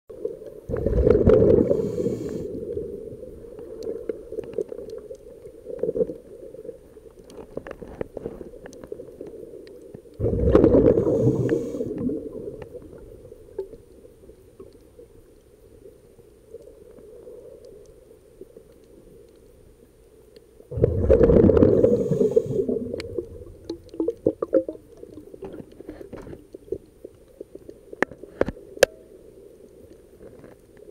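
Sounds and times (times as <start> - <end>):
muffled water noise: 0.1 - 30.9
gurgling rush of air bubbles: 0.6 - 3.6, 10.2 - 13.7, 20.7 - 25.8.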